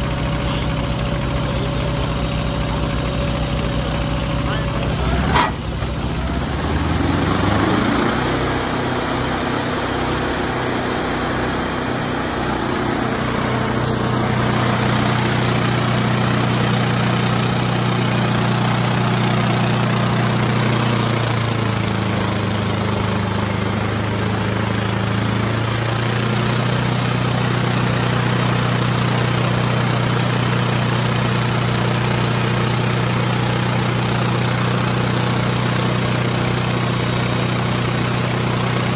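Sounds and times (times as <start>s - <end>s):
sawmill engine running under load: 0.0s - 38.9s.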